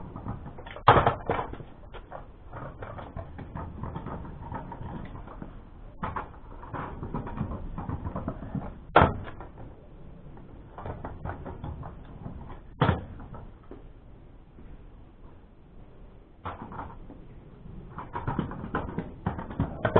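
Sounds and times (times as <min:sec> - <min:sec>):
scooter landing bangs: 0:00.0 - 0:02.1, 0:06.8 - 0:09.6
scooter wheels rolling on concrete: 0:00.0 - 0:19.9.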